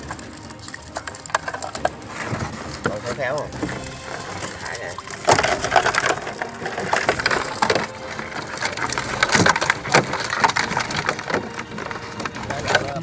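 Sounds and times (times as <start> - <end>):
wire crab traps rattling: 0.0 - 13.0.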